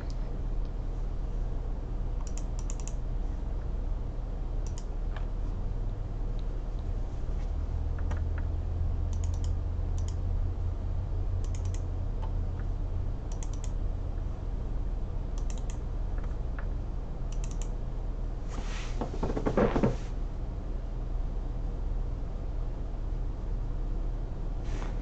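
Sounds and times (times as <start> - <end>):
low electrical hum: 0.0 - 25.0
keyboard and mouse clicks: 2.2 - 3.0, 4.6 - 5.3, 9.1 - 10.2, 11.4 - 12.7, 13.3 - 13.8, 15.4 - 16.7, 17.3 - 17.7
rustling noise: 18.4 - 20.2, 24.6 - 25.0.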